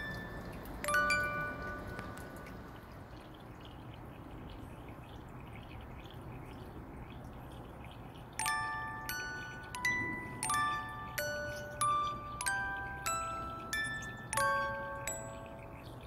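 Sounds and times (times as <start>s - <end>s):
bright chime tones: 0.0s - 2.3s, 8.4s - 16.0s
soft steady hiss: 0.0s - 16.0s.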